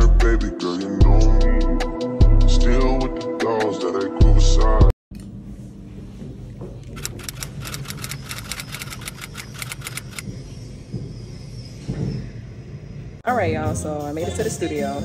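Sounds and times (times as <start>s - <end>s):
rapid even clicks: 7.0s - 10.2s.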